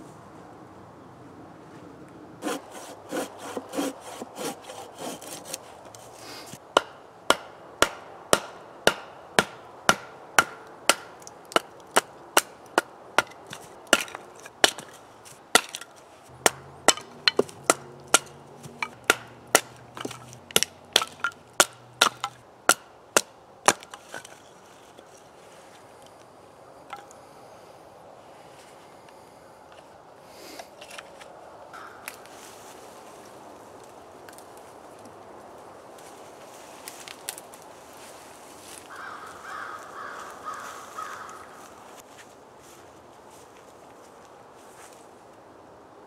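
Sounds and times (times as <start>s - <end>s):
scraping on wood: 2.4s - 6.6s, 13.2s - 22.4s.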